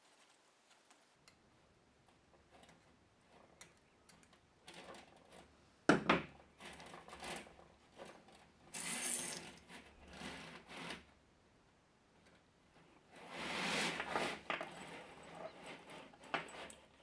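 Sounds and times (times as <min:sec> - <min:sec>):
metal hose rubbing and scraping: 0:12.8 - 0:17.0.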